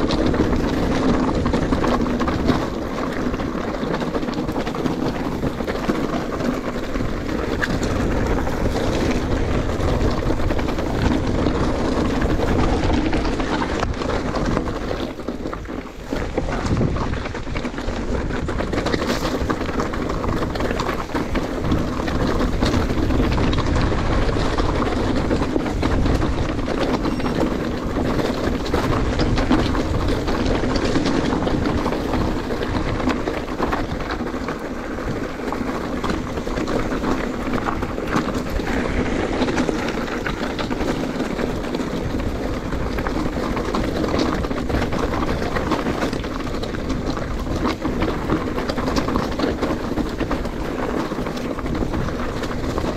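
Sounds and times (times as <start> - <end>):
bike tyre noise and rattle: 0.0 - 52.9.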